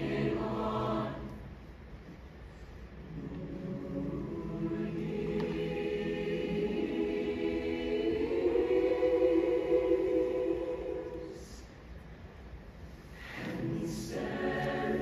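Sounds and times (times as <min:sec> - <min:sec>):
choir singing sustained chord: 0:00.0 - 0:01.6, 0:03.0 - 0:11.8, 0:13.2 - 0:15.0.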